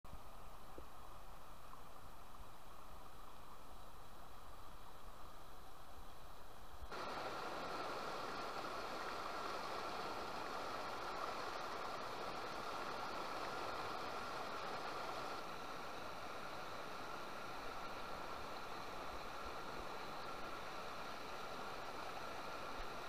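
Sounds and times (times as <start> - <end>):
river rapids rushing over boulders: 6.9 - 23.0.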